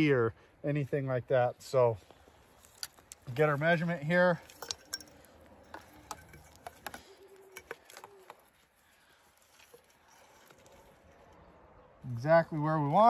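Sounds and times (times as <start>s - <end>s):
plastic pipe clicks and rustles: 2.0s - 3.7s, 4.4s - 11.4s.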